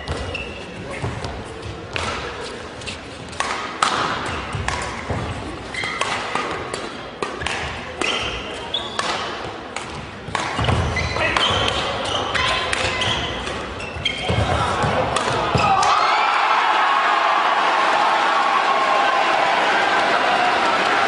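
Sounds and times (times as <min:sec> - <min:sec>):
shoes squeaking on court: 0:00.0 - 0:03.5, 0:04.2 - 0:06.3, 0:08.0 - 0:09.2, 0:10.3 - 0:15.8
rackets striking shuttlecock: 0:01.9 - 0:02.4, 0:03.4 - 0:15.8.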